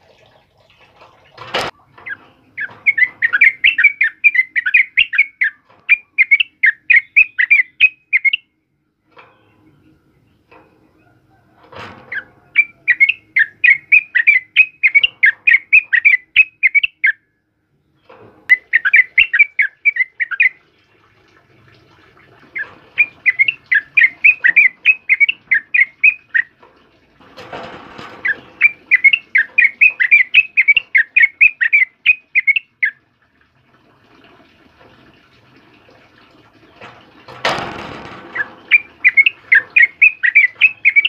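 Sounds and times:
bird singing chirpy notes: 0:01.8 - 0:08.6, 0:12.1 - 0:20.6, 0:22.6 - 0:26.6, 0:28.2 - 0:33.0, 0:38.4 - 0:41.0.

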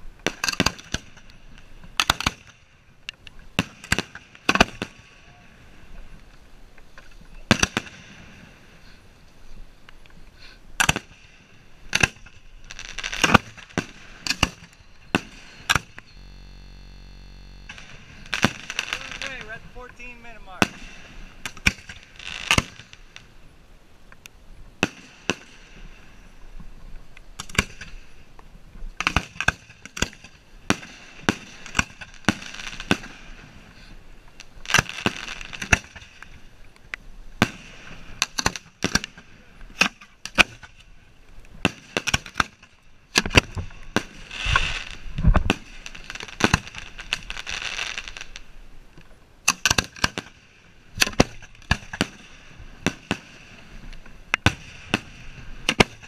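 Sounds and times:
fireworks firing: 0:10.8 - 0:23.3, 0:41.6 - 0:48.5, 0:49.5 - 0:53.8, 0:54.4 - 0:56.0
firework hissing: 0:16.1 - 0:20.0.

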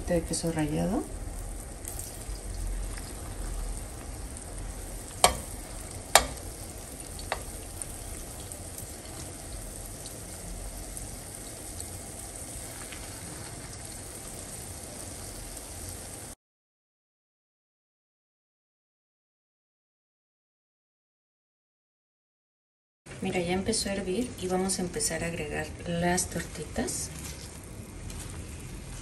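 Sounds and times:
batter sizzling in hot oil: 0:00.0 - 0:16.4
metal spoon clicking against pan: 0:05.2 - 0:05.5, 0:06.2 - 0:06.4.

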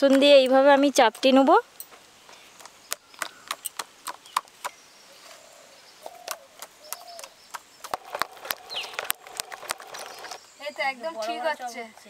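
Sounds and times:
hens clucking: 0:07.9 - 0:10.4.

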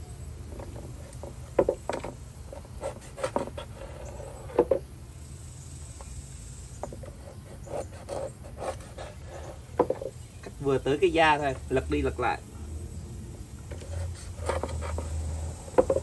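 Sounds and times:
cleaver knocking on plastic board: 0:09.8 - 0:10.1, 0:15.7 - 0:16.0.

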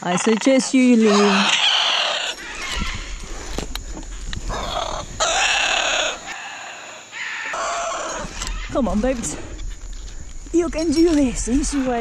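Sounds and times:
macaw screeching: 0:00.4 - 0:03.2, 0:04.5 - 0:08.8.

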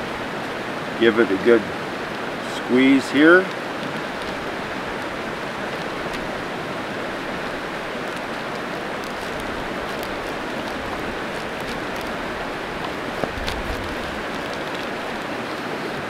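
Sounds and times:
creek water rushing: 0:00.0 - 0:16.0
plastic bag crinkling: 0:03.8 - 0:15.4.

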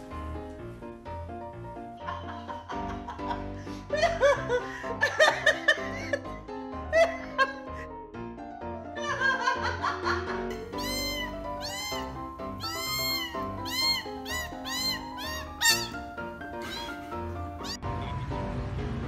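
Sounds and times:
background music: 0:00.0 - 0:19.0
cat meowing: 0:10.5 - 0:17.8.

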